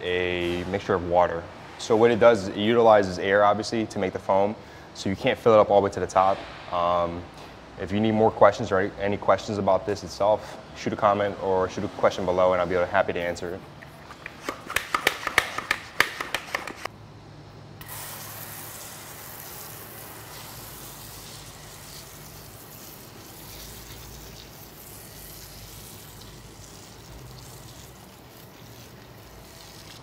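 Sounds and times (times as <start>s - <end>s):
sprayer hissing: 17.8s - 30.0s
hand pump strokes: 18.9s - 30.0s.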